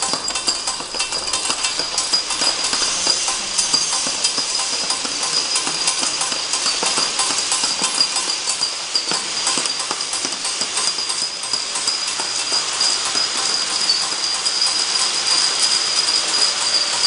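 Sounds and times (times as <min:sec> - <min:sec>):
glass ampoules clicking and clinking: 0:00.0 - 0:17.0
machine high whine: 0:00.0 - 0:17.0.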